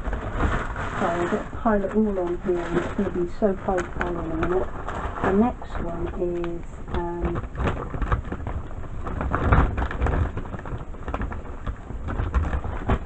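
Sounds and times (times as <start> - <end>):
dull bumps of items moved: 0.0 - 13.0
shopping bag rustling: 0.0 - 13.0.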